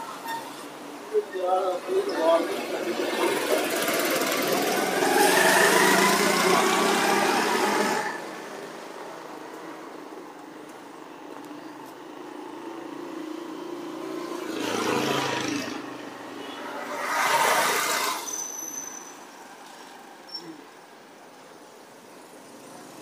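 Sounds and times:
steady hum of engines: 0.0s - 23.0s
vehicles passing close by: 0.0s - 23.0s.

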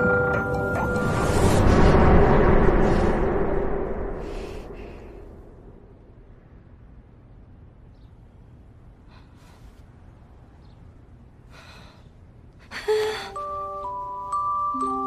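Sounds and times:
music of bell-like notes: 0.0s - 1.2s, 13.3s - 15.0s
loud breath-like rush: 1.2s - 6.1s
woman breathing and sighing: 11.4s - 13.8s.

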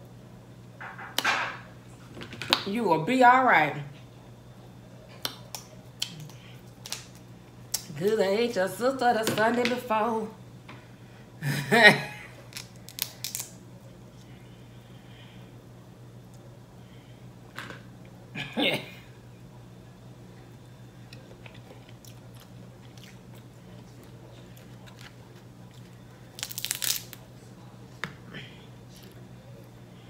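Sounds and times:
steady low hum: 0.0s - 30.0s
crab shell cracking: 5.2s - 7.9s, 12.5s - 13.6s, 25.8s - 27.2s
soft chewing: 20.4s - 30.0s.

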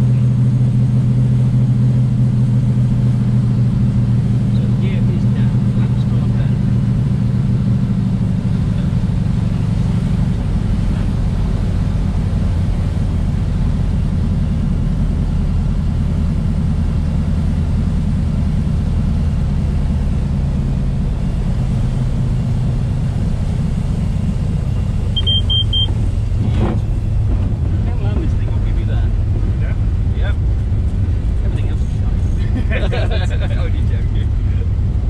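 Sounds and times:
airplane engine and propeller drone: 0.0s - 35.0s
short high beep: 25.1s - 26.0s.

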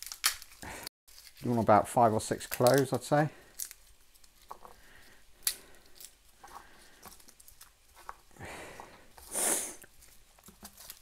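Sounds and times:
garlic skin crackling: 0.0s - 8.2s
breath through the nose: 8.4s - 9.9s.

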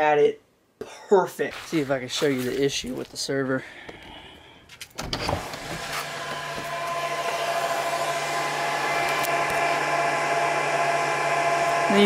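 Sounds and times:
computer cooling fans whirring: 5.0s - 12.0s.

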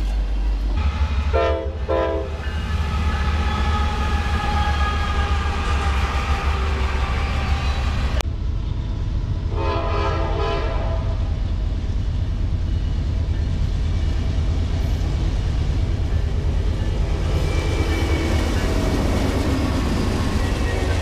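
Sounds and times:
locomotive engines and wheels rumbling: 0.0s - 21.0s
locomotive air horn blast: 1.3s - 7.8s, 9.5s - 11.2s.

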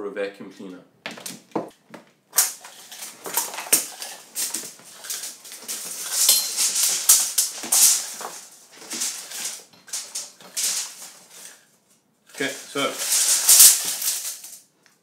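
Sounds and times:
electrical cord rustling and clattering: 1.1s - 14.7s.

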